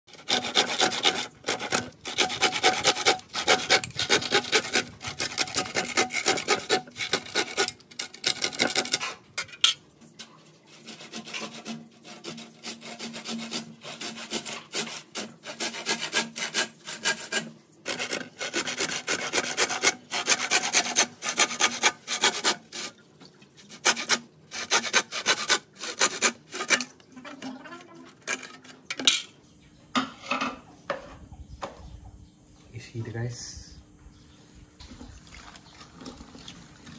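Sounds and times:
hand saw rasping through bamboo: 0.1s - 9.2s, 10.7s - 23.0s, 23.7s - 28.7s.

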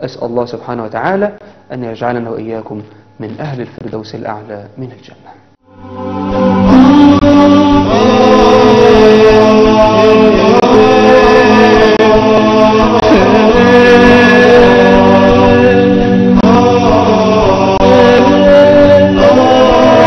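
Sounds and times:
voice chanting held notes: 6.6s - 20.0s.

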